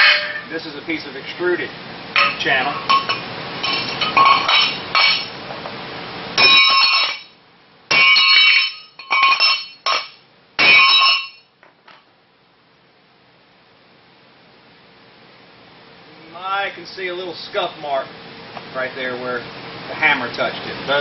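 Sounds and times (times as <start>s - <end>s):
hammer striking aluminum: 0.0s - 0.5s, 2.2s - 5.3s, 6.4s - 11.5s.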